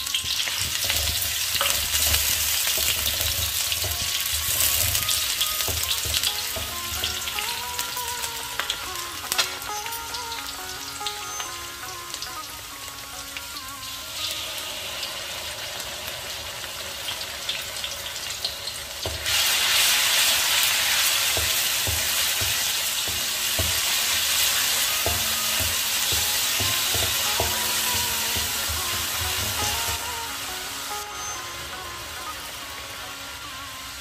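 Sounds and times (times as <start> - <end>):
food sizzling in hot oil: 0.0 - 34.0
wooden spatula knocking on pan: 0.1 - 8.0, 19.0 - 19.4, 20.8 - 30.4.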